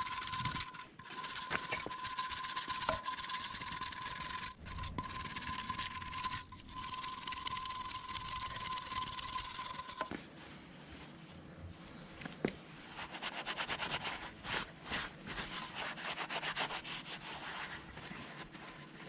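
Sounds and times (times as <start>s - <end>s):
metal tool rasping on metal: 0.0s - 10.1s.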